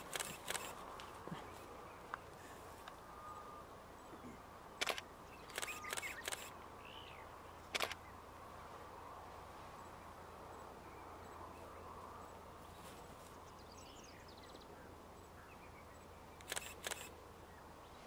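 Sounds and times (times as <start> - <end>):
short sharp clicks: 4.8 - 6.5.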